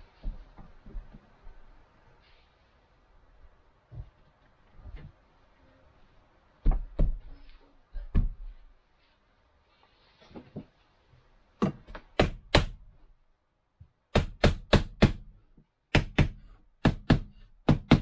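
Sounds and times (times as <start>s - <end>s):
hammer knocking nails into wood: 14.1s - 15.3s, 15.9s - 18.0s.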